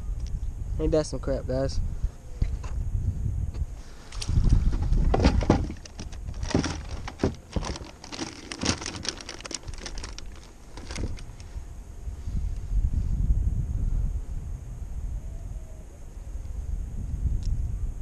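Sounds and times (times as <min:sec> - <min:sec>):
wind buffeting microphone: 0:00.0 - 0:18.0
tackle clicking and rattling: 0:04.9 - 0:11.4.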